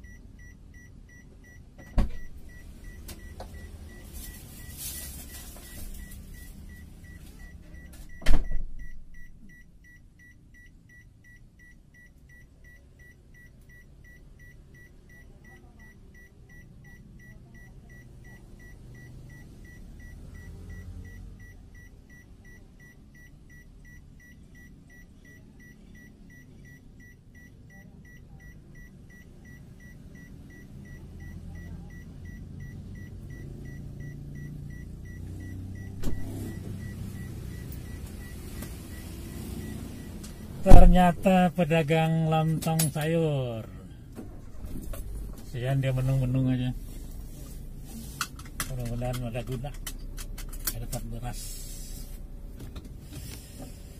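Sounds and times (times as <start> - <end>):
car warning chime beeping: 0.0 - 47.4
loud thump: 8.2 - 8.9, 36.0 - 36.3, 40.6 - 41.3.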